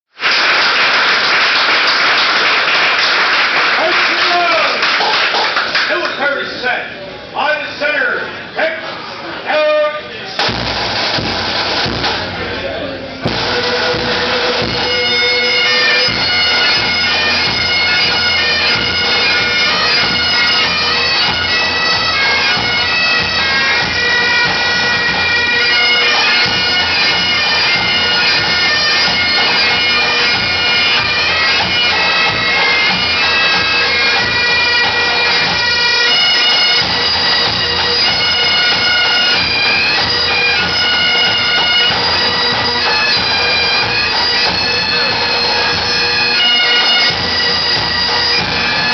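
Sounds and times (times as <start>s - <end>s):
bagpipes playing: 13.1s - 48.9s.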